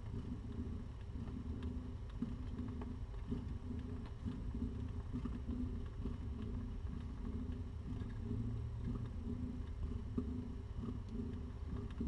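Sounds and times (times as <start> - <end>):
cat purring: 0.0 - 12.0
faint small clicks: 8.8 - 12.0.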